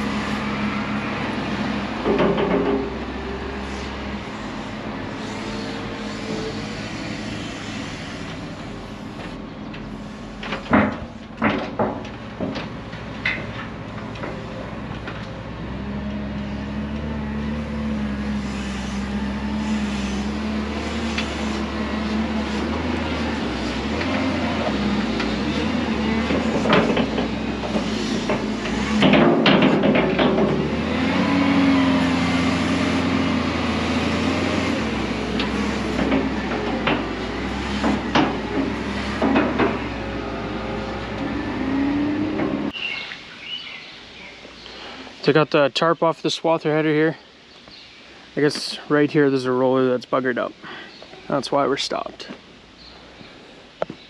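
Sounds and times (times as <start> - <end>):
wheel loader diesel engine running: 0.0 - 42.8
sharp clanks and knocks: 2.0 - 3.0, 9.2 - 15.4, 23.6 - 31.0, 34.6 - 40.2, 42.3 - 42.8.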